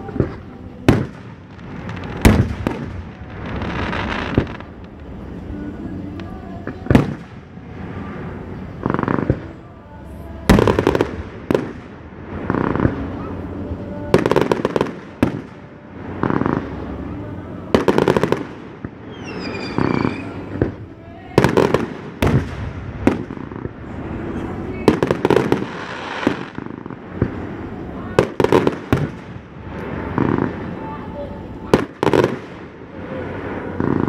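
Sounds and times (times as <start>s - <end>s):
firework crackling: 0.0s - 34.0s
falling firework whistle: 19.0s - 20.6s.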